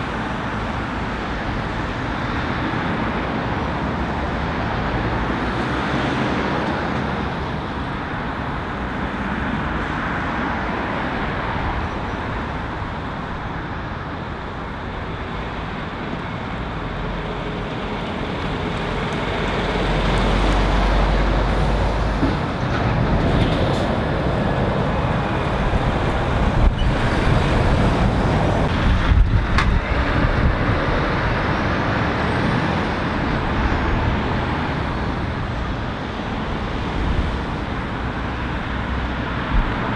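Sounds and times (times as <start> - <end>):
road traffic passing: 0.0 - 39.9
lorry diesel engine rumbling: 13.7 - 39.9.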